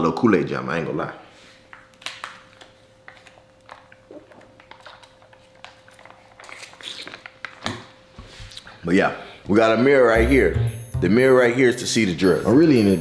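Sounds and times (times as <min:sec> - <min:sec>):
plastic wrapper crinkling: 0:01.7 - 0:07.7.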